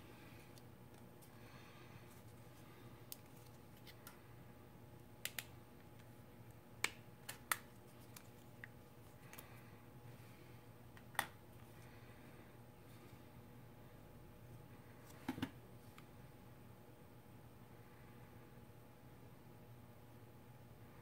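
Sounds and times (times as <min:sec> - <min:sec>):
plastic clicks and snaps: 0:05.2 - 0:05.5.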